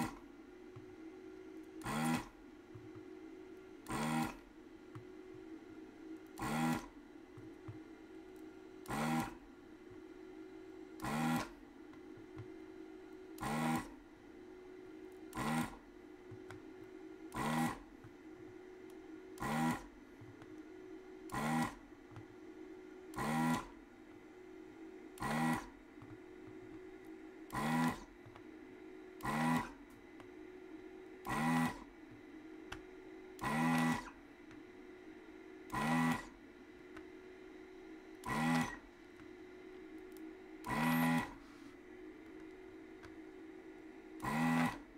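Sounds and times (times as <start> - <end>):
desoldering vacuum pump bursts: 1.8 - 2.3, 3.8 - 4.4, 6.4 - 6.9, 8.8 - 9.4, 17.3 - 17.8, 21.3 - 21.8, 25.2 - 25.7, 27.5 - 28.1, 29.2 - 29.8, 31.2 - 31.9, 33.4 - 34.1, 35.7 - 36.3, 38.2 - 38.8, 40.6 - 41.5, 44.2 - 44.8.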